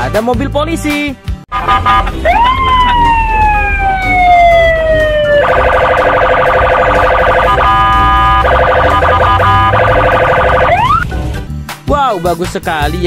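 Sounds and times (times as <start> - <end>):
police siren wailing and yelping: 1.6 - 11.0.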